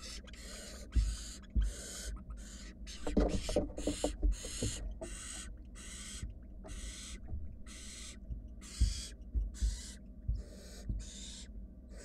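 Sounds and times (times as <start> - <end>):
owl nestlings hissing: 0.0 - 12.0
soft low thumps: 0.8 - 2.3, 6.2 - 11.5.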